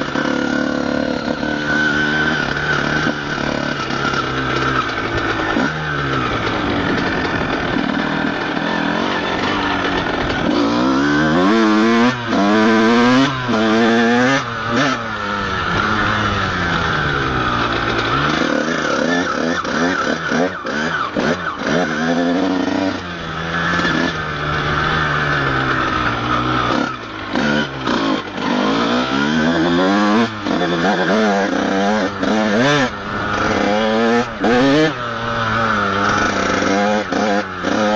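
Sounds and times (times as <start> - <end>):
motocross engine revving: 0.0 - 37.9.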